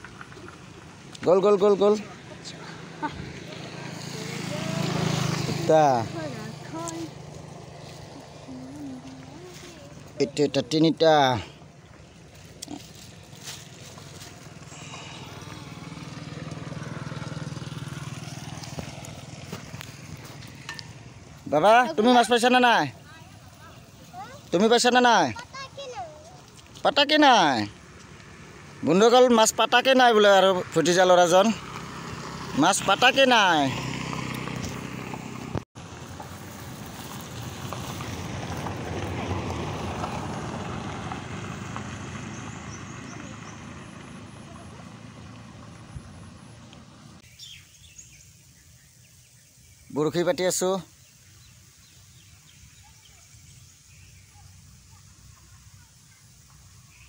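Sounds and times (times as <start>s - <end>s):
small engine puttering: 0.0s - 10.7s, 11.4s - 22.0s, 30.2s - 47.2s
motor scooter passing: 0.0s - 50.3s.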